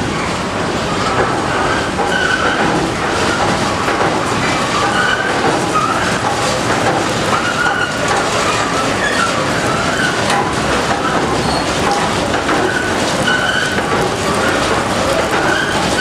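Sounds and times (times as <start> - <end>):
mill machinery din: 0.0 - 16.0
wavering machine squeals: 1.5 - 3.5, 4.7 - 6.2, 7.3 - 10.3, 11.0 - 11.8, 12.6 - 14.7, 15.3 - 16.0.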